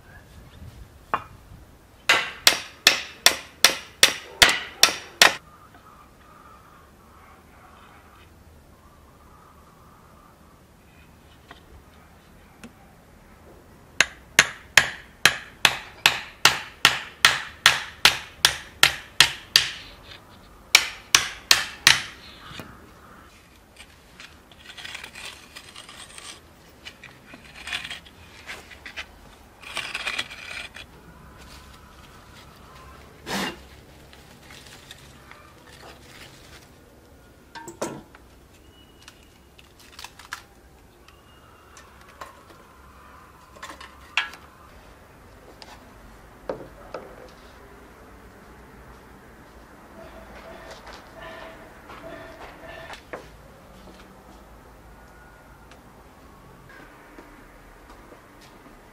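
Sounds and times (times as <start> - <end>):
scraping and rubbing: 23.3 - 36.8.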